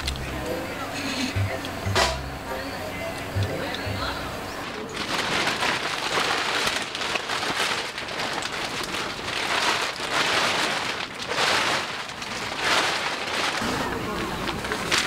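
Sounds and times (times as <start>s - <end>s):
plastic sheet rustling and crinkling: 3.7s - 15.0s.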